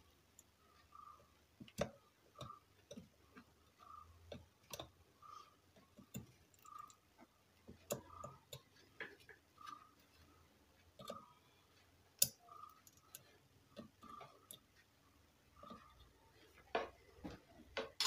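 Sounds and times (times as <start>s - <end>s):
soldering iron clicks and taps: 12.2s - 13.1s.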